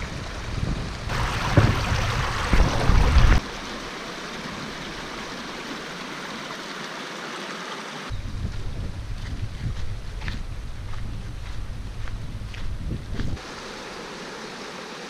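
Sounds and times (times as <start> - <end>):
stream running over rocks: 0.0 - 8.2, 13.2 - 15.0.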